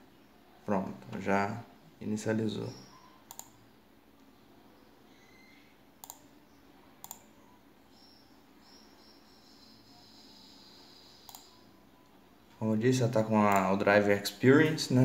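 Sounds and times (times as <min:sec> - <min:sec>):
mouse clicks: 0:02.9 - 0:03.6, 0:06.0 - 0:06.2, 0:07.0 - 0:07.3, 0:11.2 - 0:11.6
faint high tone: 0:04.6 - 0:05.8.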